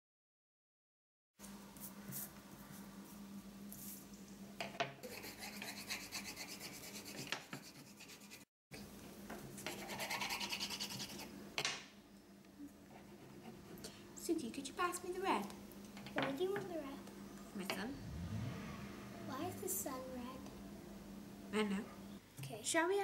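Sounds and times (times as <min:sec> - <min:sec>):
crayons scribbling on paper: 0:05.0 - 0:08.4, 0:09.7 - 0:11.3
steady low hum: 0:16.7 - 0:22.6.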